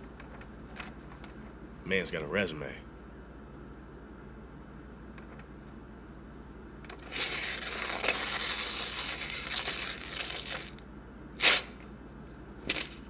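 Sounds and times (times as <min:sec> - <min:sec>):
paper crumpling: 0:06.9 - 0:10.8, 0:12.7 - 0:13.0.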